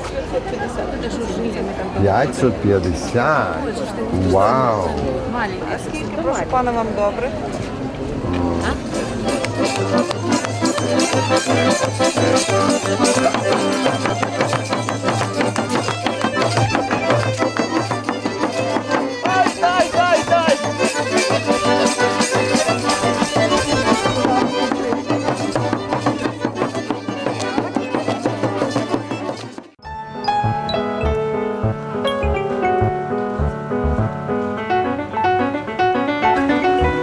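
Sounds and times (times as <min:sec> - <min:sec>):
fiddle playing folk music: 0:08.8 - 0:34.2
steady beat: 0:30.2 - 0:34.3.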